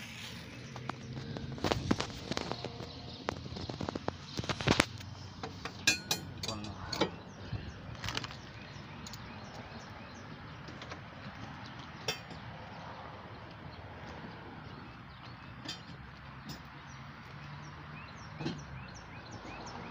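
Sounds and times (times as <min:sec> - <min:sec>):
metallic clinks and knocks of tools: 0:05.8 - 0:07.1, 0:12.0 - 0:12.5, 0:15.6 - 0:16.8.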